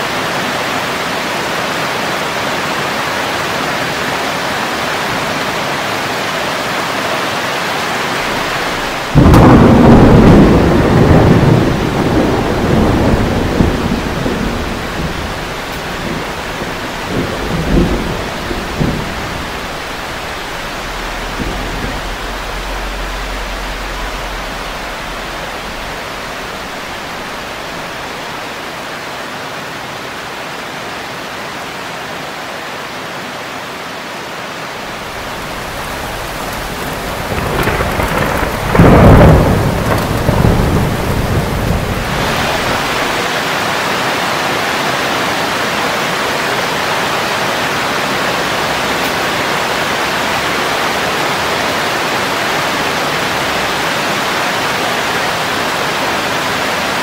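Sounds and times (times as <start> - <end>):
steady rain: 0.0 - 57.0
thunder rumbling: 7.8 - 28.5, 34.8 - 43.6.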